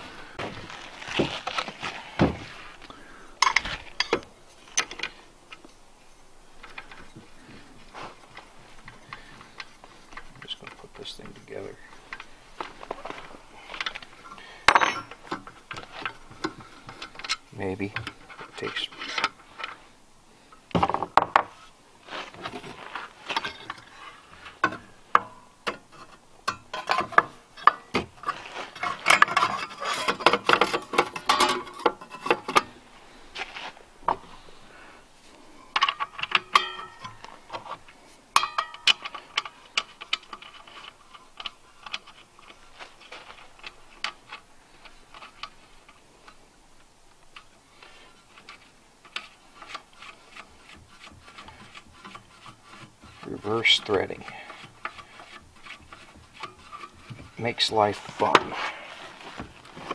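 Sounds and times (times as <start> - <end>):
metallic clicks and rattles of a saw: 38.4 - 42.6.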